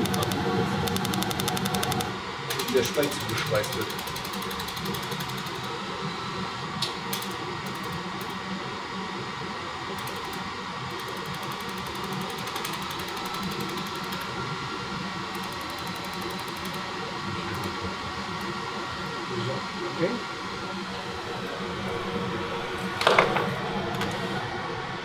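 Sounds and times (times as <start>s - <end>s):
short clicks: 0.0s - 2.8s
fast faint regular ticking: 0.0s - 5.8s, 10.0s - 14.4s, 15.3s - 16.9s
machine fans humming: 0.0s - 25.0s.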